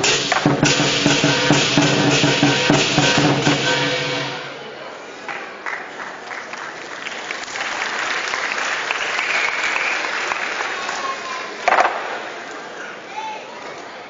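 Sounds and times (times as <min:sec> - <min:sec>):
audience applauding: 0:05.2 - 0:11.7.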